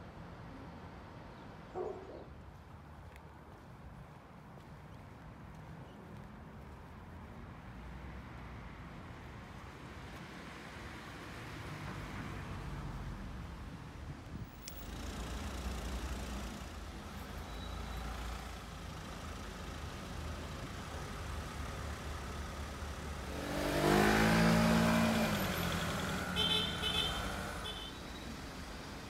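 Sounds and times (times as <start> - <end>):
cars idling in traffic: 14.4 - 24.0, 24.9 - 29.0
vehicle engine revving close: 22.9 - 27.8.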